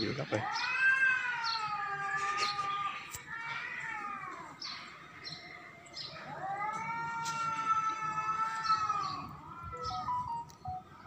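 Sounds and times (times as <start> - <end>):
cat yowling: 0.4 - 4.5, 6.2 - 10.2.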